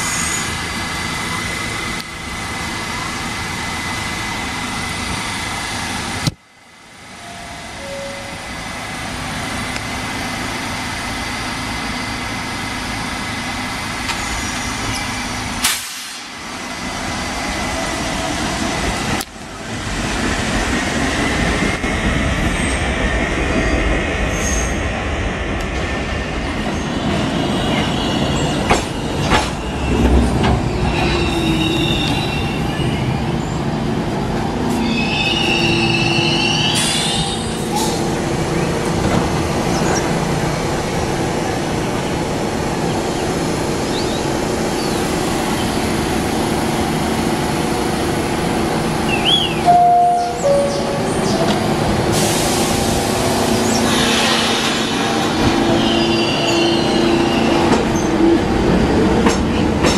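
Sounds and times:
subway train rumble: 0.0 - 59.9
high wheel squeal: 30.7 - 33.3, 34.8 - 38.0, 53.6 - 58.1.

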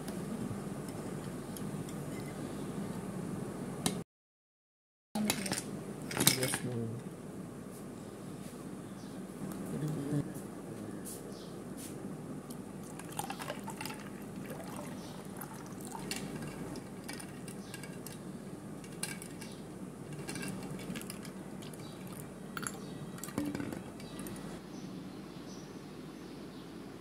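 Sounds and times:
water pouring into a bowl: 12.8 - 16.8
ice and metal clinking: 12.9 - 18.2, 18.8 - 24.4
spoon stirring a drink: 12.9 - 18.2, 18.9 - 24.5.

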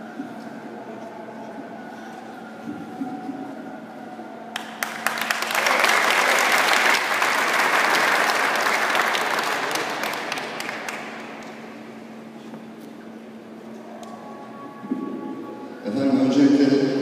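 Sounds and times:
audience applauding: 4.5 - 11.7.

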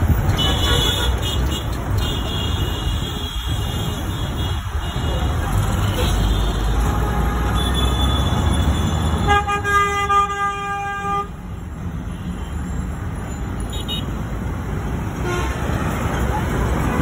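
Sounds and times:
road traffic rumble: 0.0 - 17.0
vehicle horn: 0.4 - 5.0, 6.1 - 11.4, 15.2 - 15.8.

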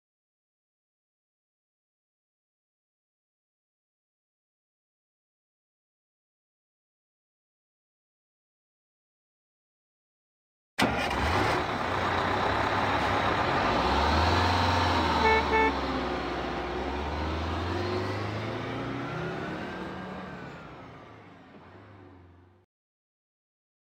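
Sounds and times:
bus engine driving off: 10.8 - 22.7
bus horn toots: 14.9 - 16.1.

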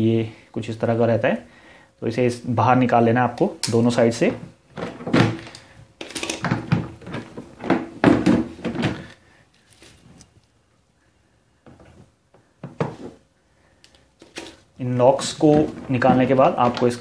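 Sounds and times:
plastic cistern knocks and scrapes: 6.3 - 9.1, 15.2 - 17.0.

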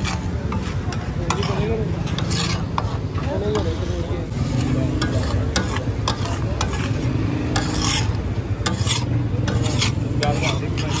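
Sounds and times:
metal spatula scraping griddle: 0.0 - 11.0.

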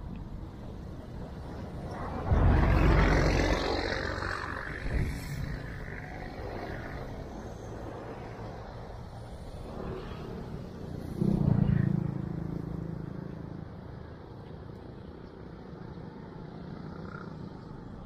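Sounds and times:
vehicle engine passing by: 1.8 - 8.6.

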